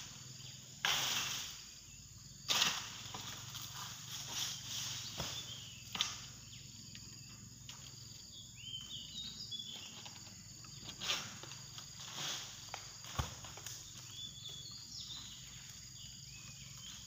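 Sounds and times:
insects buzzing: 0.0s - 17.0s
bird chirping: 4.8s - 11.0s, 13.8s - 17.0s.

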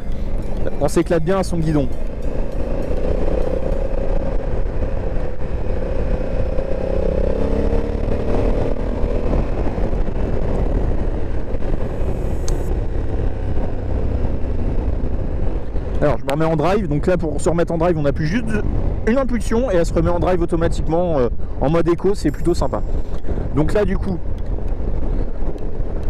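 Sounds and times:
motorcycle engine running: 0.0s - 15.9s
road and wind noise: 0.0s - 26.0s.

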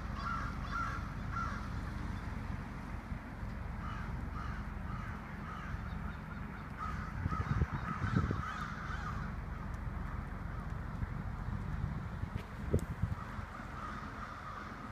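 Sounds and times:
low rumble: 0.0s - 14.9s
crows cawing: 0.1s - 1.8s, 3.8s - 9.7s, 13.2s - 14.9s.

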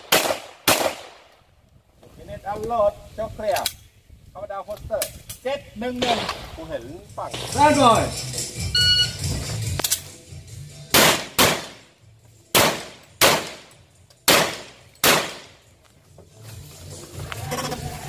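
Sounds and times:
pistol shots ringing: 10.9s - 11.8s, 12.5s - 15.6s.

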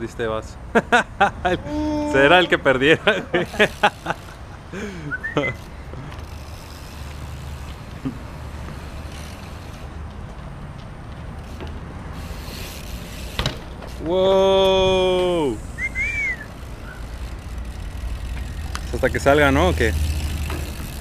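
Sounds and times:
street traffic rumble: 0.0s - 21.0s
person shouting: 1.6s - 2.5s, 14.1s - 15.6s
bike landing clack: 12.4s - 15.4s, 20.0s - 21.0s.

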